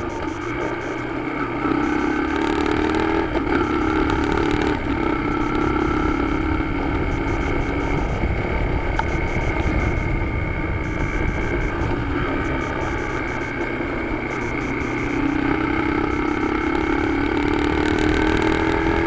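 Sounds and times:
motorcycle engine running: 0:00.0 - 0:19.0
wind noise on microphone: 0:05.6 - 0:15.4.

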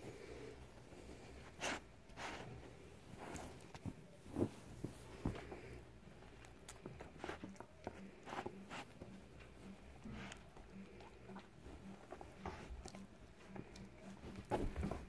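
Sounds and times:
dog sniffing: 0:01.4 - 0:03.6.

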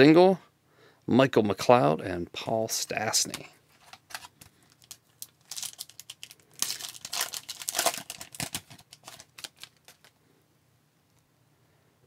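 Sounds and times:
foil wrapper tearing and crinkling: 0:03.8 - 0:10.2.

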